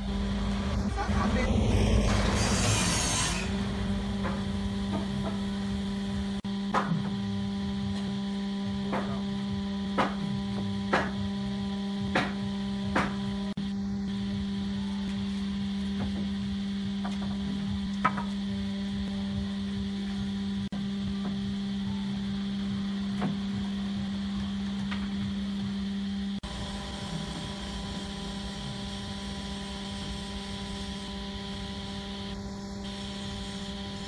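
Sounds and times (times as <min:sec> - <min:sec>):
truck passing: 0:00.0 - 0:06.0
electrical hum: 0:00.0 - 0:34.0.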